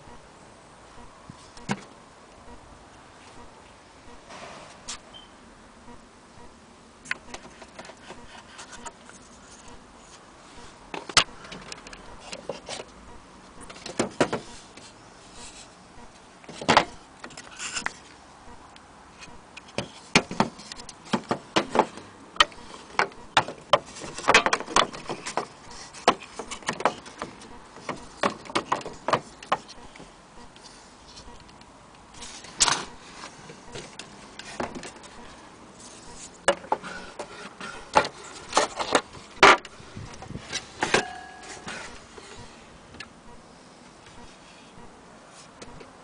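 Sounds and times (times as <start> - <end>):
wooden parts clicking and knocking: 19.6 - 30.0.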